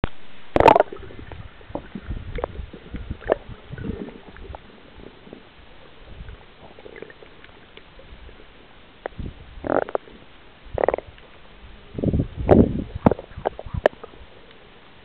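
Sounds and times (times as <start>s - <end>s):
water splashing: 0.1s - 11.4s
muffled underwater knocks and gurgling: 0.6s - 8.2s, 12.5s - 14.2s.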